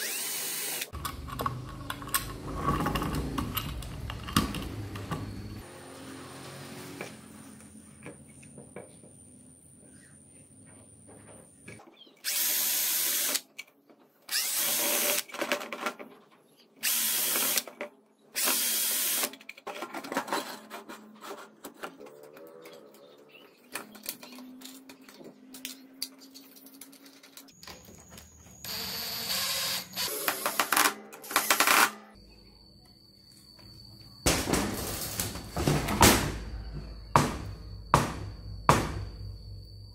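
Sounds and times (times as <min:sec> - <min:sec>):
power drill driving screws: 0:00.0 - 0:00.9, 0:12.2 - 0:13.4, 0:14.3 - 0:15.3, 0:16.8 - 0:17.7, 0:18.4 - 0:19.3, 0:28.7 - 0:31.9
handling clicks and clatter: 0:01.0 - 0:05.6.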